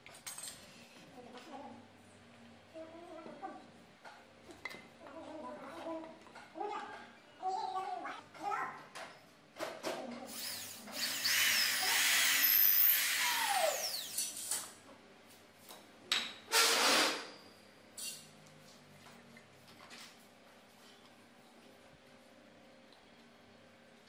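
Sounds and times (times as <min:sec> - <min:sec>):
electric drill boring into wood: 0:10.6 - 0:14.1.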